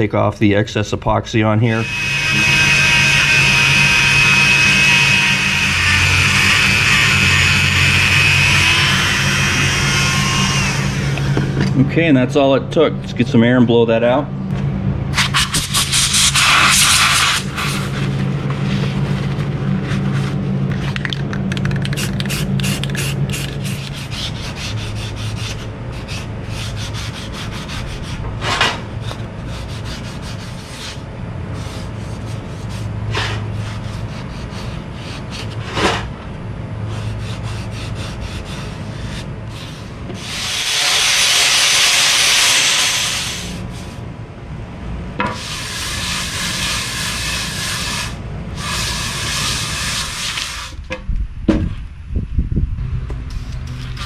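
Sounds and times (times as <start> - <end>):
low hum: 0.8 - 54.0
hand scraping on metal parts: 36.9 - 44.0, 45.2 - 50.8.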